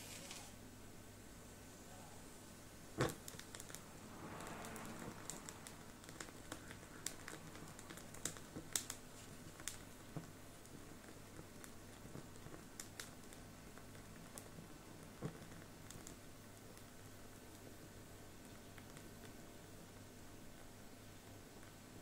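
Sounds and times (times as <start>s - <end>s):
charcoal crackling: 0.0s - 22.0s
soft hiss of flame: 0.0s - 22.0s
sharp clicks and ticks: 3.0s - 9.8s.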